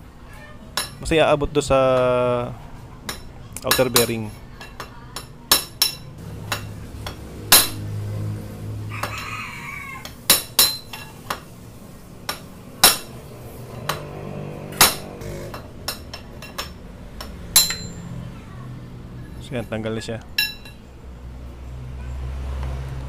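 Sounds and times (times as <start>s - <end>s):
hammer striking metal pipe: 5.2s - 7.9s, 10.3s - 11.4s, 12.3s - 18.0s, 20.4s - 20.8s.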